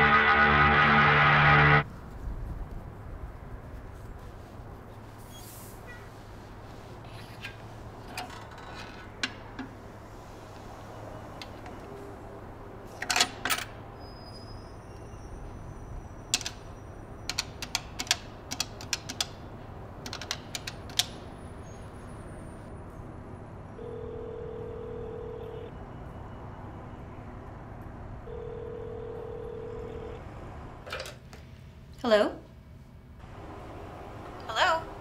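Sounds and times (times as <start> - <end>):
telephone ringback tone: 23.8 - 25.7, 28.3 - 30.2.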